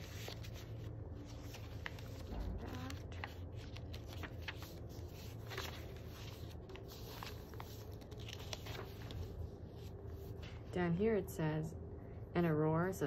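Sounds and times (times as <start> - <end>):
paper pages rustling: 0.0 - 10.7
faint low hum: 0.0 - 13.0.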